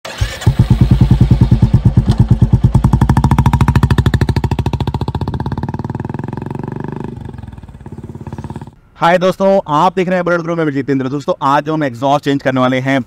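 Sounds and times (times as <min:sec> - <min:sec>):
motorcycle engine thumping: 0:00.5 - 0:08.8.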